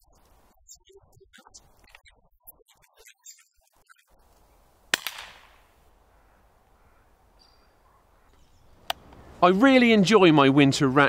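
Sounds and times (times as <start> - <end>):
air rifle shot crack: 4.9 - 5.7.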